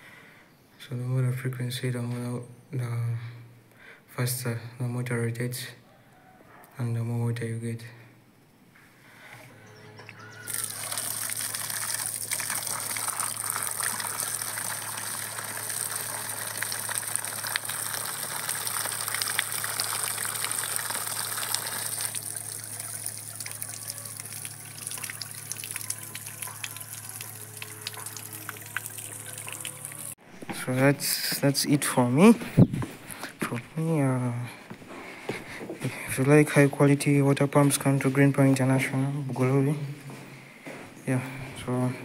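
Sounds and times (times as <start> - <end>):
water gushing from a pipe: 10.5 - 30.2.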